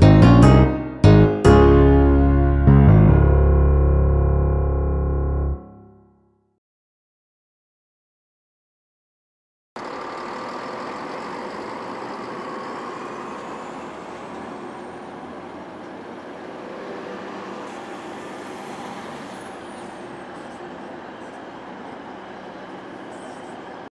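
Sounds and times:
diesel railcar engine rumble: 9.8s - 23.9s.

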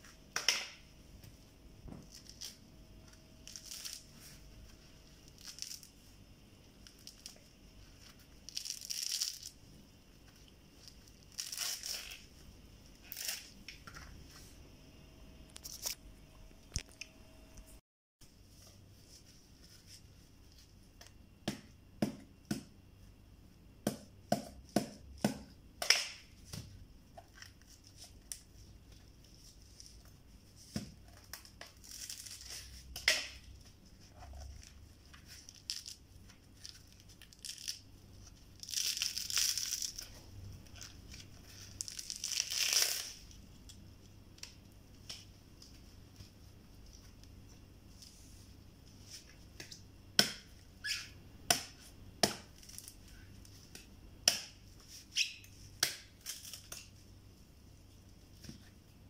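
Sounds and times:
husk ripping: 41.6s - 43.2s.

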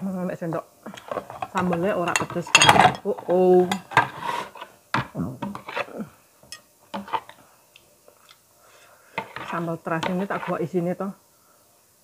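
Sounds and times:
metal spoon scraping plastic bowl: 0.9s - 4.7s, 5.4s - 5.9s, 7.0s - 7.4s, 9.2s - 10.7s
glass plates clinking: 1.0s - 3.1s.

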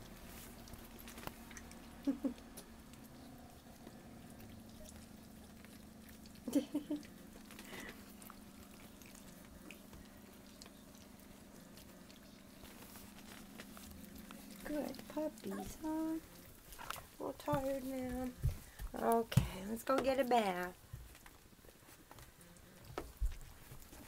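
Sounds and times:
faint pattering: 0.2s - 24.0s.

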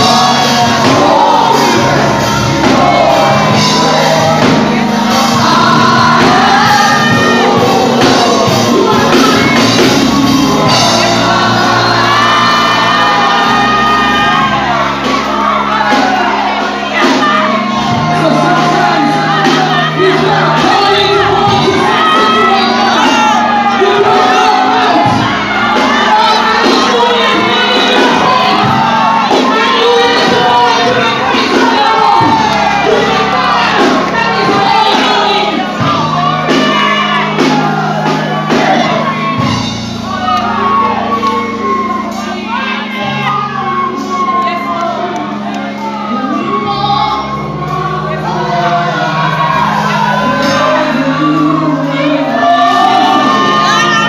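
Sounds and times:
congregation shouting: 0.0s - 54.0s
gospel singers with band: 0.0s - 54.0s
held bass notes: 0.0s - 54.0s.

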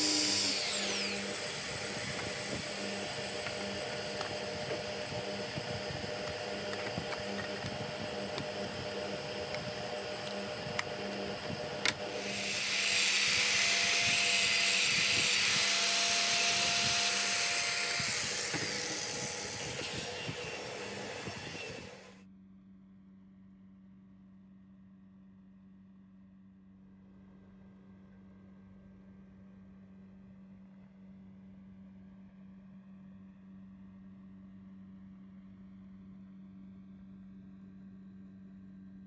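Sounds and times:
disc sander running: 0.0s - 22.2s
workshop machine hum: 0.0s - 22.2s.

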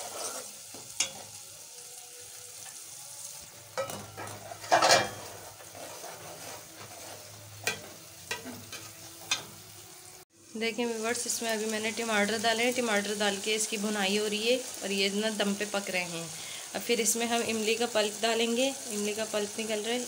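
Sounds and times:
steel ladle scraping pot: 0.0s - 1.4s, 3.8s - 9.6s
spices sizzling in oil: 0.0s - 20.0s.

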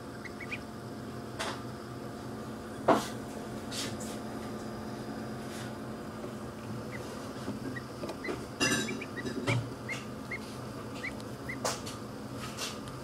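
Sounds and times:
duckling peeping: 0.0s - 0.8s, 6.8s - 11.8s
steady low hum: 0.0s - 13.0s.

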